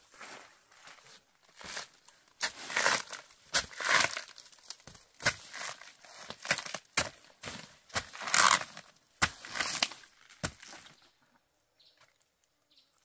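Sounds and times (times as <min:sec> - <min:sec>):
plant stalks tearing and crunching: 0:02.4 - 0:11.0.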